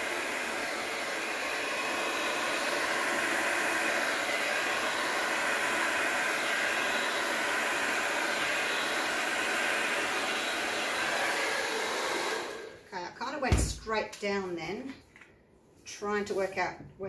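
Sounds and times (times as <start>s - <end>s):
hair dryer blowing: 0.0s - 13.5s.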